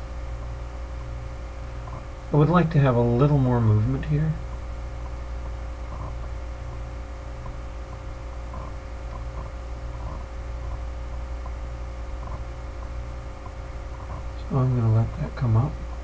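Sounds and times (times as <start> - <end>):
low electrical hum: 0.0 - 16.0
faint ticks: 4.4 - 14.4.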